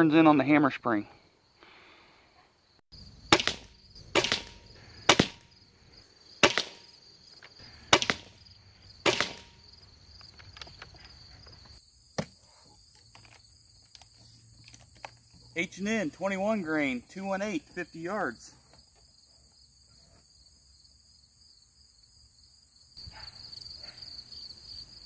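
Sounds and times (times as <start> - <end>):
crickets chirping: 1.0 - 25.0
air rifle shots: 3.3 - 5.5, 6.4 - 6.9, 7.8 - 8.4, 9.0 - 9.6.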